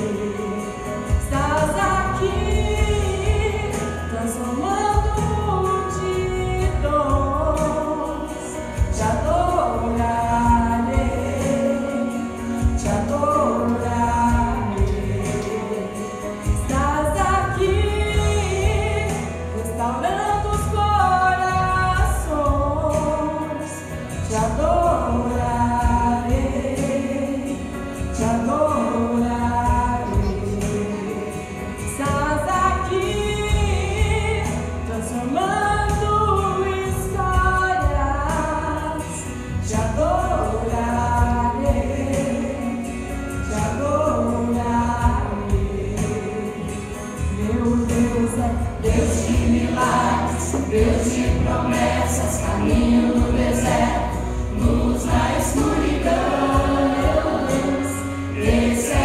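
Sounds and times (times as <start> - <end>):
low instrumental accompaniment: 0.0 - 59.0
mixed choir singing: 48.8 - 59.0.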